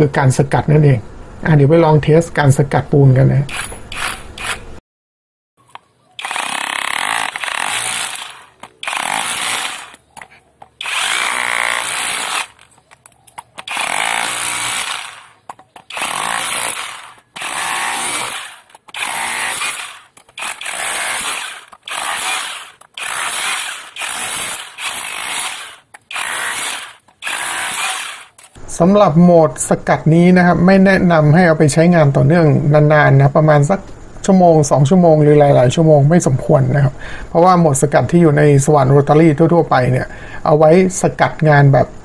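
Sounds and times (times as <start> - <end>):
rotary hammer chiseling concrete: 3.5 - 4.6, 6.2 - 28.6.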